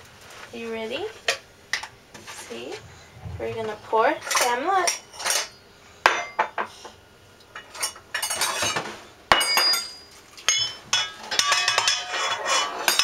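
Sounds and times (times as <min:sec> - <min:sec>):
metal cup clinking on steel bowl: 0:07.8 - 0:13.0.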